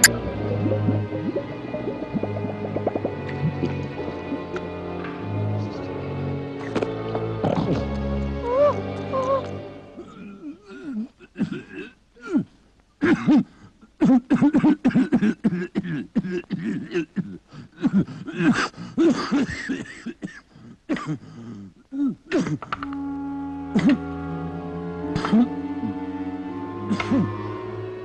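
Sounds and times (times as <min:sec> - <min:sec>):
held music chord: 0:00.0 - 0:10.0, 0:22.8 - 0:28.0
person coughing gasping and groaning: 0:10.0 - 0:22.7.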